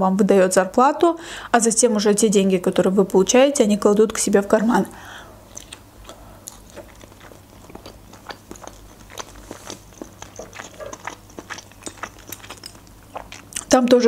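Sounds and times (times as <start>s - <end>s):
person chewing: 5.3s - 13.7s.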